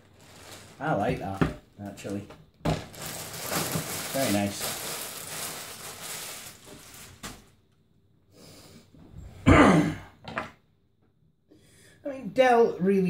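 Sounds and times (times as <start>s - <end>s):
bubble wrap rustling: 0.0s - 7.6s.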